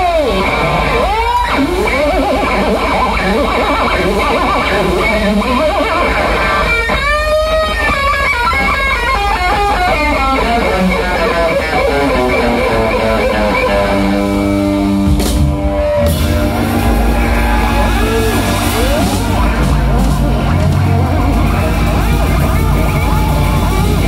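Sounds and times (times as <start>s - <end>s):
electric guitar solo: 0.0s - 24.0s
steady bass line: 9.6s - 24.0s.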